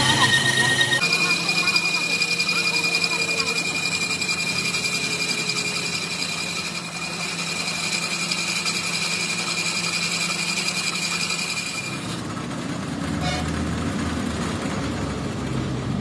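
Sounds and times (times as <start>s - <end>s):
metal lathe running: 0.0s - 13.4s.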